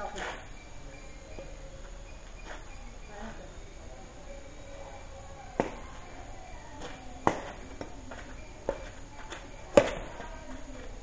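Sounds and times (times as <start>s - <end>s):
rackets hitting shuttlecock: 5.5s - 6.0s, 6.8s - 10.3s.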